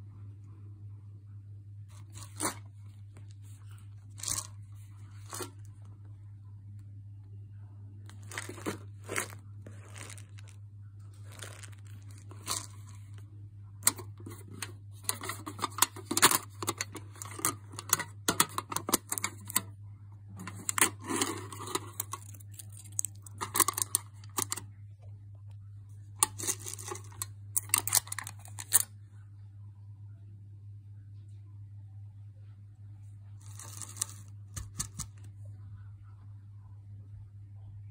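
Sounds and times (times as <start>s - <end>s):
foil seal tearing and crinkling: 8.1s - 10.6s, 11.2s - 12.8s, 20.7s - 24.6s.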